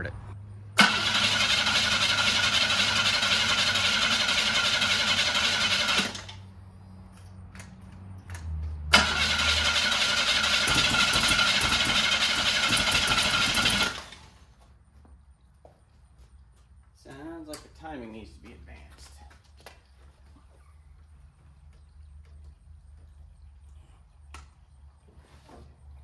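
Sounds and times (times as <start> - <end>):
starter motor cranking engine: 0.8 - 6.4, 8.9 - 14.3.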